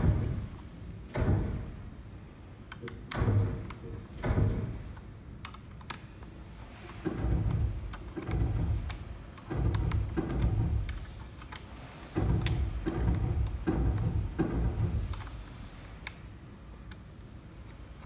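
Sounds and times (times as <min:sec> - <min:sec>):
metal clunks and clatter: 0:06.7 - 0:15.4.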